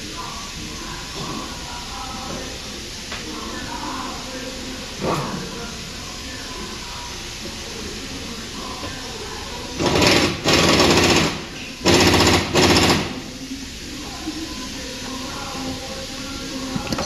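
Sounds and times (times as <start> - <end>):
impact wrench hammering: 9.8 - 13.2.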